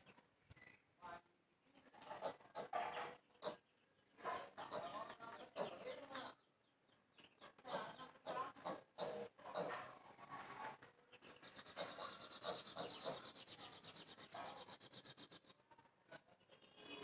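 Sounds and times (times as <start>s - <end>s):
faint talking: 1.0s - 6.5s, 7.2s - 14.9s.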